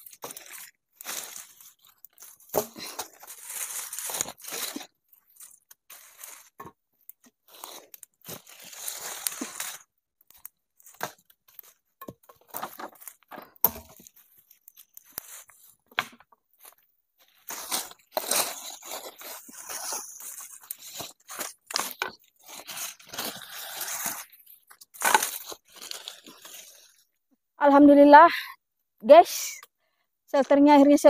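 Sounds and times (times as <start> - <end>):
leaves rustling and crunching: 0.0 - 6.6, 7.5 - 11.8, 16.6 - 26.9.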